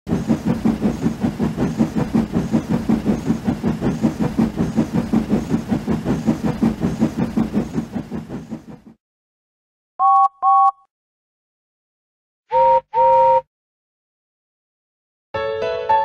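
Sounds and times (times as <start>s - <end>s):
steam locomotive chuffing: 0.1s - 9.0s.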